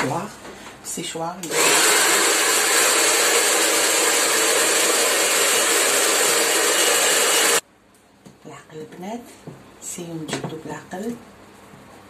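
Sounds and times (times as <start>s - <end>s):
hair dryer running: 1.4s - 7.6s.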